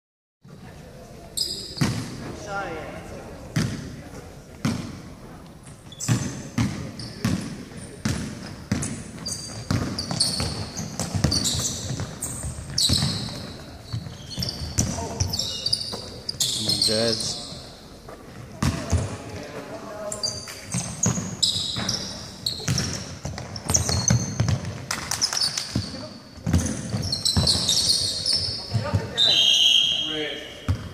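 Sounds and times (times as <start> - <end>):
sneakers squeaking: 0.4 - 30.9
players' voices echoing: 0.5 - 24.1, 25.8 - 30.9
basketball bouncing on wooden floor: 6.0 - 15.3, 18.6 - 19.2, 20.7 - 27.9, 30.7 - 30.9.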